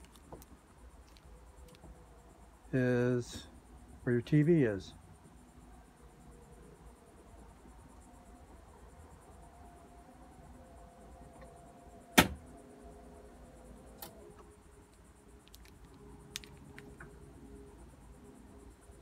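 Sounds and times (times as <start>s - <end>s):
sharp clicks: 14.0s - 17.1s.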